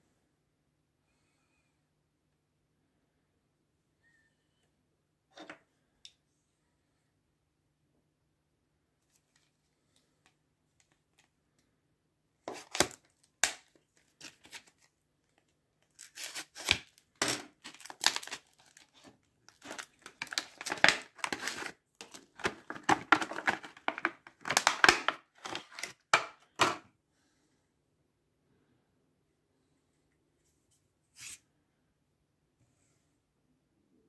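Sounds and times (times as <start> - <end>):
plastic blister pack crackling: 15.8 - 26.7.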